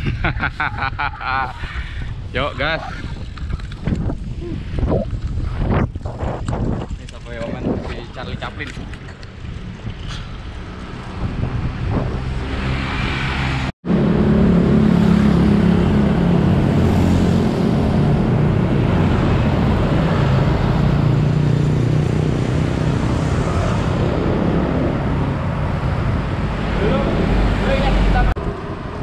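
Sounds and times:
cars and motorcycles passing: 0:07.3 - 0:29.0.

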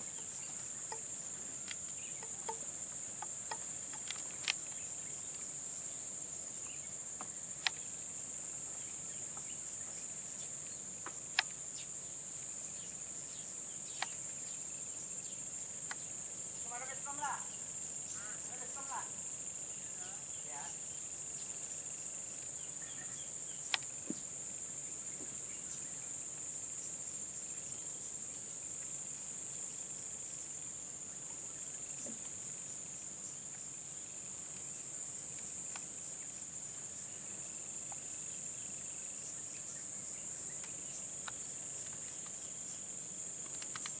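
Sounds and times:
insects chirping: 0:00.0 - 0:44.0
sharp click: 0:43.4 - 0:44.0.

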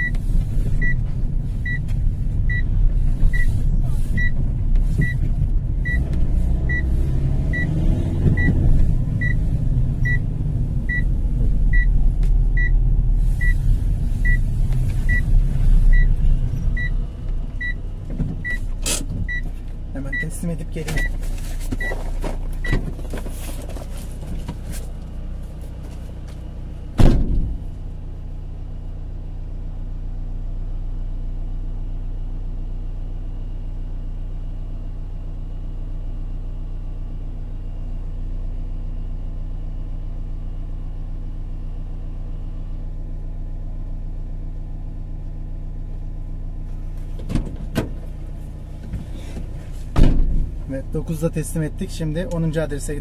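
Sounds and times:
vehicle engine idling: 0:00.0 - 0:53.0
door slam: 0:27.0 - 0:27.7, 0:49.9 - 0:50.5.

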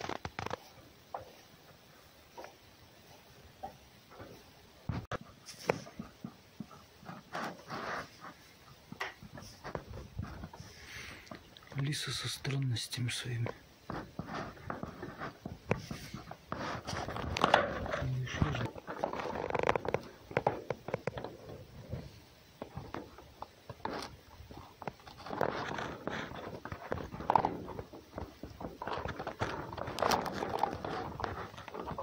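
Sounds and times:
rustling in straw bedding: 0:14.0 - 0:17.1.

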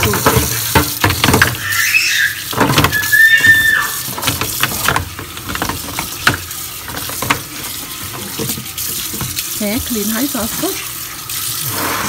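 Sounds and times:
tap water splashing: 0:00.0 - 0:12.0
oyster shells clacking: 0:04.0 - 0:09.4.

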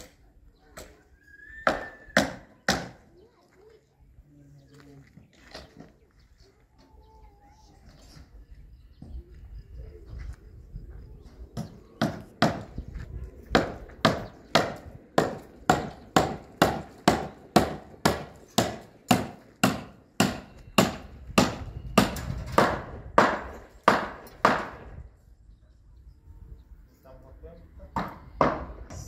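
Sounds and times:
hammer striking a wall: 0:13.5 - 0:24.8.

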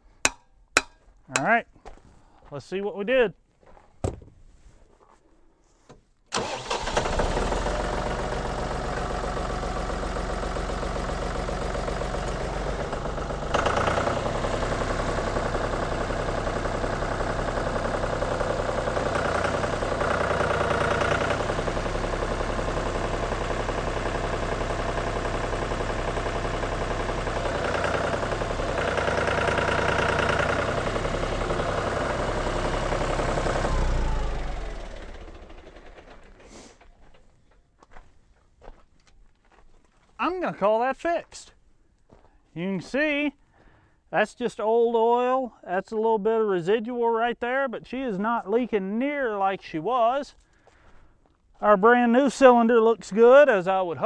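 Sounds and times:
tractor diesel engine running: 0:06.3 - 0:38.0, 0:47.9 - 0:54.0.

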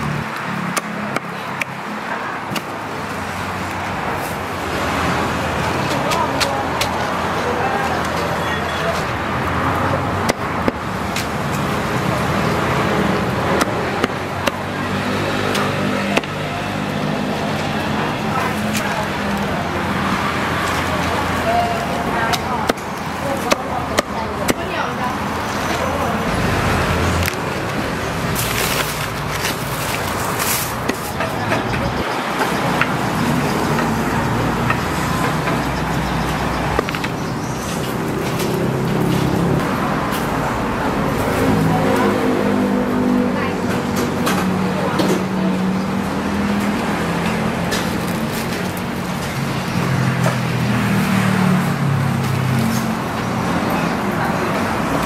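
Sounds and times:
street traffic din: 0:00.0 - 0:55.0
vehicle engine humming: 0:00.0 - 0:55.0.

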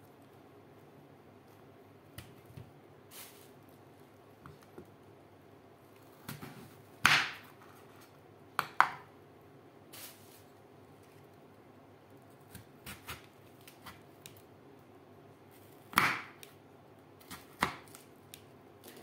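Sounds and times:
knife cutting watermelon rind: 0:12.3 - 0:14.4.

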